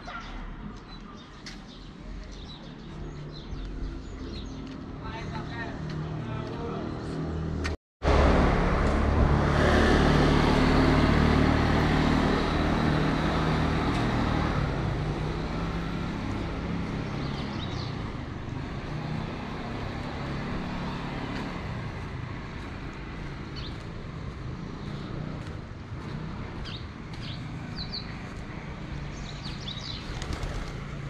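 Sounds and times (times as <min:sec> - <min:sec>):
road traffic hum: 0:00.0 - 0:31.0
vehicle engine running: 0:19.8 - 0:31.0.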